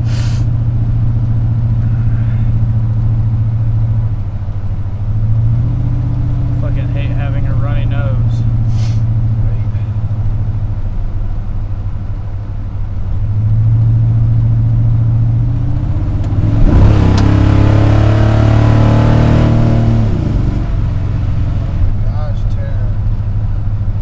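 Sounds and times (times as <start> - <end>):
rotary engine revving: 13.4 - 23.2.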